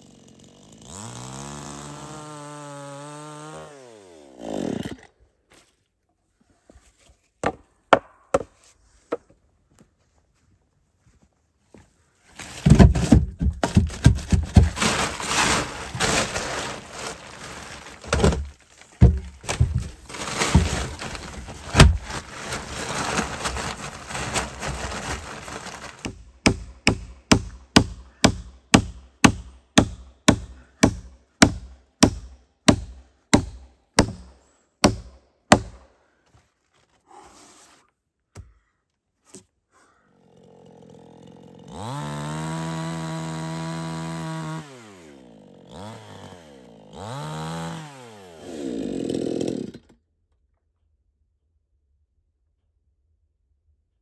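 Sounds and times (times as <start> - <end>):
hammer striking wood: 7.4 - 8.6, 26.1 - 35.9
rough scraping noise: 12.4 - 26.1.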